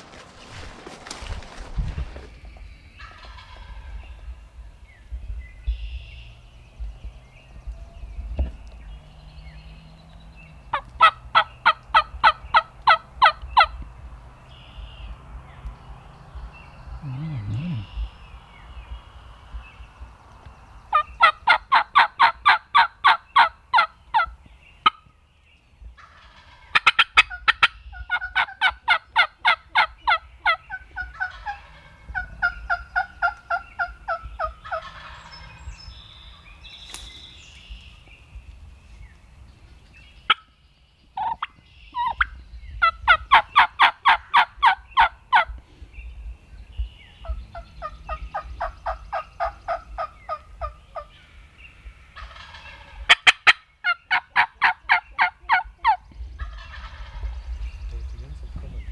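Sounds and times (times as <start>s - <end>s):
turkey yelping: 10.7s - 13.7s, 20.9s - 24.3s, 26.0s - 35.4s, 41.2s - 45.5s, 52.2s - 57.3s.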